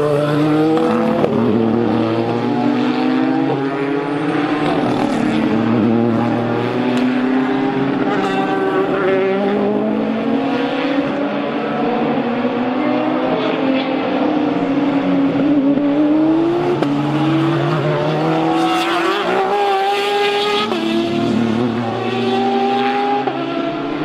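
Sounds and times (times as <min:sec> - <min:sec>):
race car engines at speed: 0:00.0 - 0:24.0.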